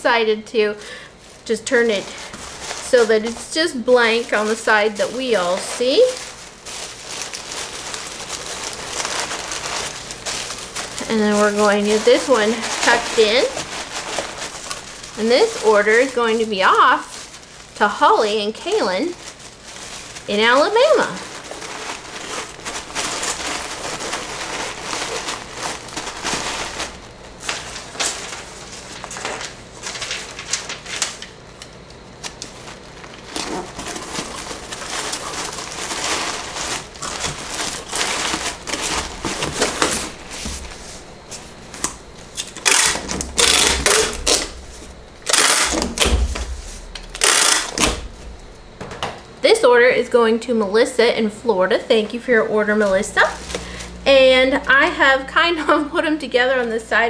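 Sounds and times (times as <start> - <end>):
paper wrap rustling: 0.1 - 48.8, 52.6 - 55.1
packing tape gun: 4.1 - 17.6, 41.8 - 44.6, 45.2 - 48.1.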